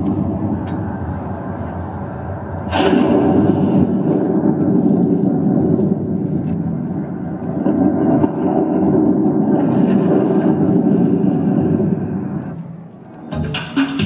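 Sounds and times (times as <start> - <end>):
muffled dance music over speakers: 13.1 - 14.0.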